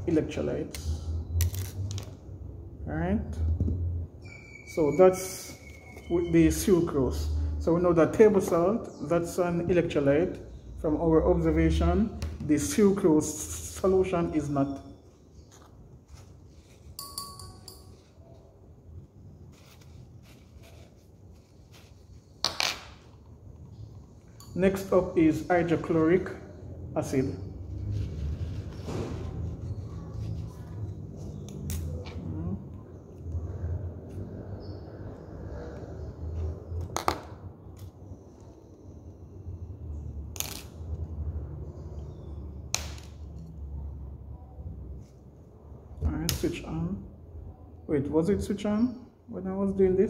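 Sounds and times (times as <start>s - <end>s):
light metal clink: 17.0s - 18.2s
paper tissue rustling: 19.2s - 22.4s.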